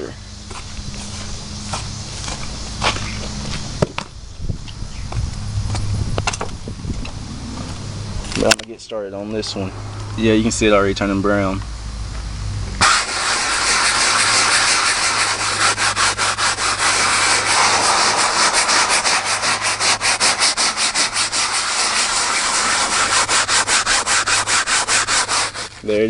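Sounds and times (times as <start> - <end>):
scrubbing fabric by hand: 12.8 - 26.0.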